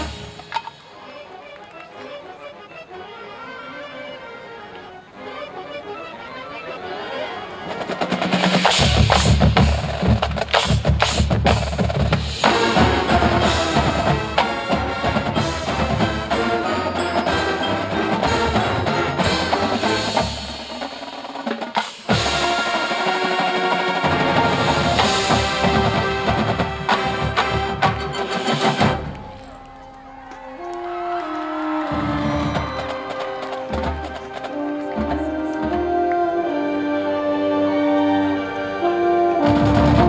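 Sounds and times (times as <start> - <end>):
marching drumline: 7.7 - 36.4, 39.4 - 40.0
mallet percussion bells: 15.4 - 20.4.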